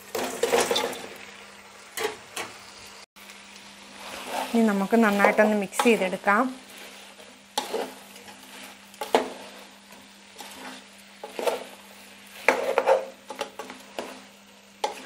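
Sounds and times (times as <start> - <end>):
wooden spatula scraping a pot: 0.0 - 1.0, 3.9 - 15.0.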